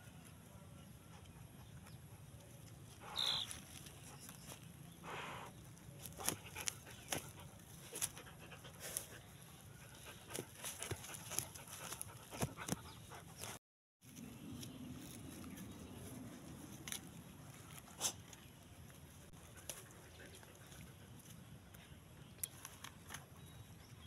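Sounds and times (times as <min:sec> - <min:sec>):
scratchy clicks of pawing at dirt: 0:05.9 - 0:09.0, 0:10.3 - 0:13.6, 0:16.7 - 0:21.8.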